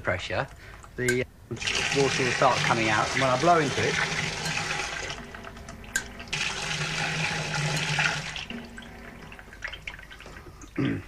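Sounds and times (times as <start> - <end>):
water rushing into a sink: 1.6 - 10.4
low hum: 4.0 - 10.7.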